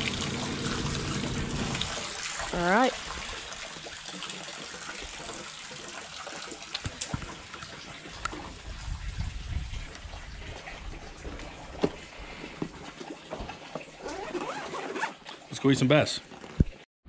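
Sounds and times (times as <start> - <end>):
water trickling from hose: 0.0 - 16.5.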